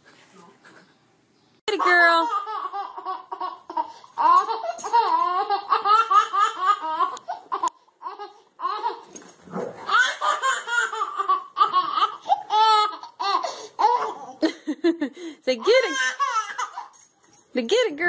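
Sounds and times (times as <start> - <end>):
baby laughing: 1.7 - 9.1, 9.8 - 14.6, 15.6 - 17.0.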